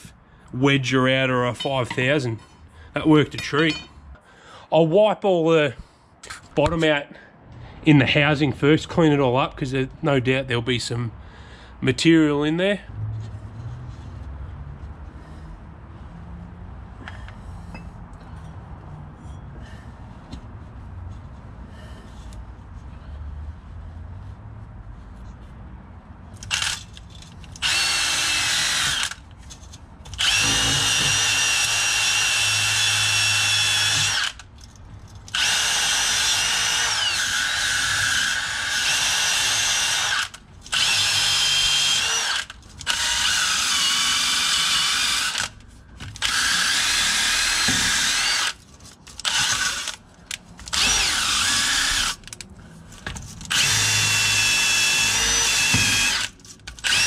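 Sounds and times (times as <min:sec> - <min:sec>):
drill with wire wheel whining: 0:26.4 - 0:27.0, 0:27.6 - 0:29.3, 0:30.1 - 0:34.5, 0:35.3 - 0:45.6, 0:46.2 - 0:48.6, 0:49.2 - 0:50.0, 0:50.7 - 0:52.4, 0:53.4 - 0:57.0.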